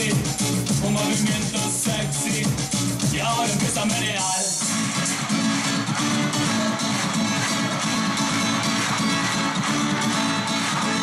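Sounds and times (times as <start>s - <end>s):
guitar music: 0.0s - 11.0s.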